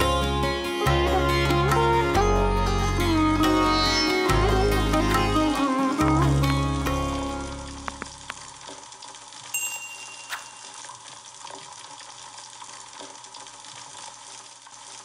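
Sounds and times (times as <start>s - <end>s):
metal clinks: 9.6s - 10.8s.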